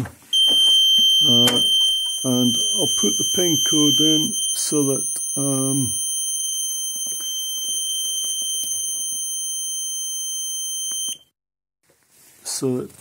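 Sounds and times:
alarm high-pitched continuous beep: 0.4 - 11.2.

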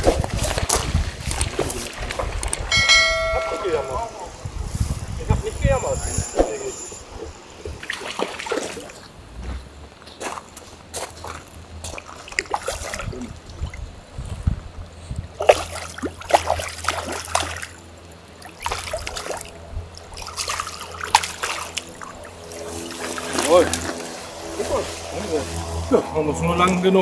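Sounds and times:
water sloshing: 7.1 - 9.2, 11.0 - 14.0, 15.3 - 25.1
fish splashing at surface: 18.4 - 24.5.

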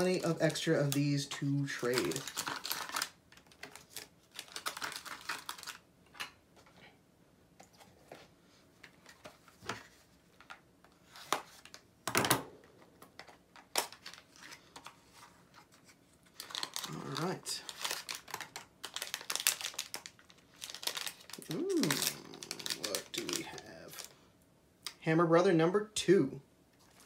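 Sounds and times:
cardboard packaging rustling: 0.0 - 6.7, 12.5 - 24.2.

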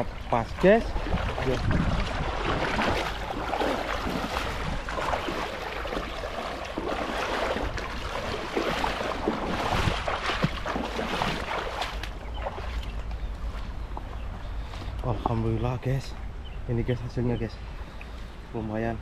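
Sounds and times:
river water rushing: 0.0 - 12.8
net splashing in water: 1.0 - 12.8.

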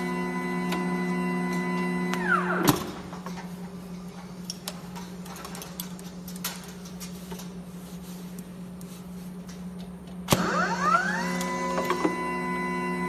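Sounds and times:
machine humming: 0.0 - 4.5, 10.0 - 13.0.

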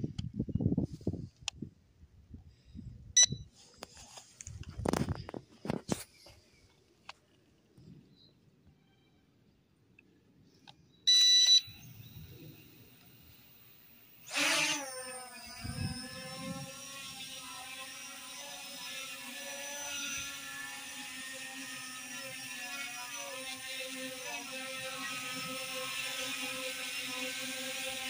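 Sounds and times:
short electronic beep: 3.2 - 3.5, 11.1 - 12.0
drone propellers whining: 11.1 - 28.0.

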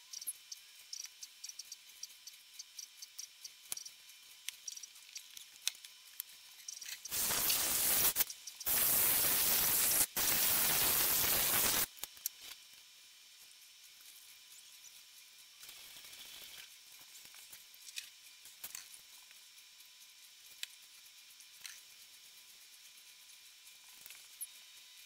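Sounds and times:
aerosol can spraying: 7.0 - 11.9.

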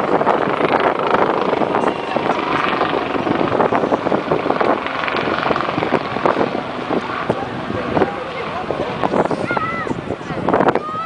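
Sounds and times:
helicopter flying past: 0.0 - 11.0.

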